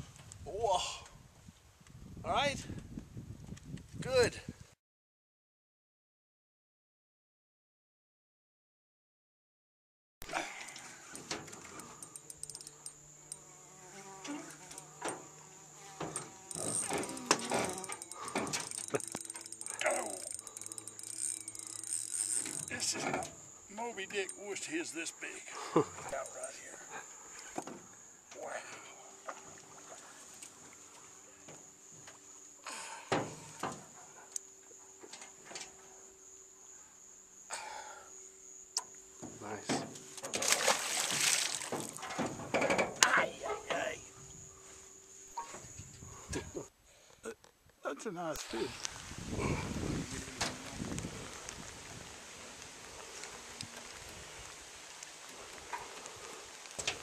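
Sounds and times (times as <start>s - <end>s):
fishing reel clicks: 11.7s - 13.4s, 16.5s - 23.4s
high-pitched buzz: 14.3s - 23.4s.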